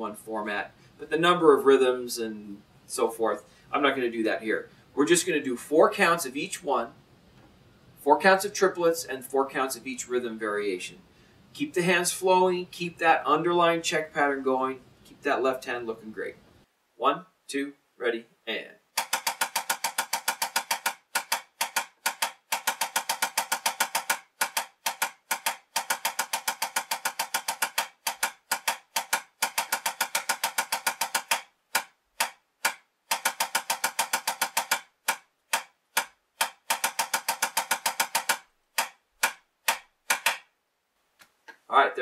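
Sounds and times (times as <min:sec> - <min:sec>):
drumsticks tapping a practice pad: 0:19.0 - 0:40.5.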